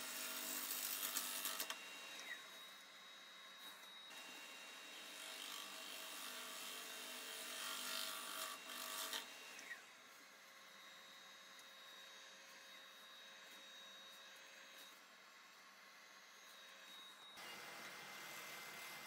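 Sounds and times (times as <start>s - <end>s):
faint steady whine: 1.7s - 5.1s, 9.3s - 19.0s.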